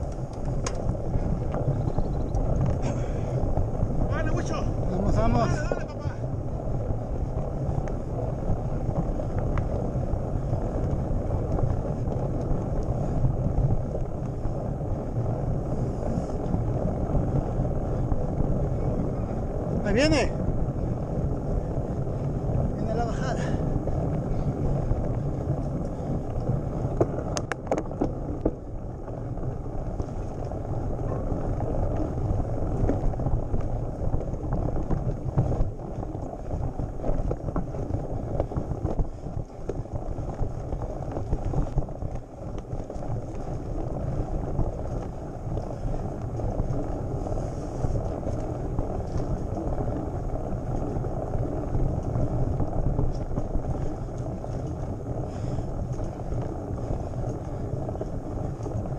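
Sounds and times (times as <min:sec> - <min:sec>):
bike rattling and knocking: 0:00.0 - 0:58.9
bike tyres rumbling on dirt: 0:00.0 - 0:58.9.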